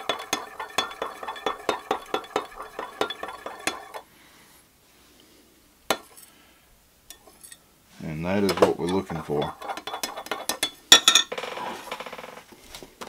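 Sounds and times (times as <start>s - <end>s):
metal stirrer clinking against glass: 0.0s - 4.0s, 8.9s - 11.3s.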